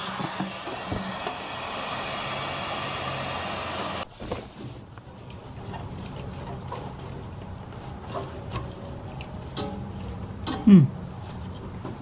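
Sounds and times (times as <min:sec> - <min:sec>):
hot-air blower hissing: 0:00.0 - 0:04.1.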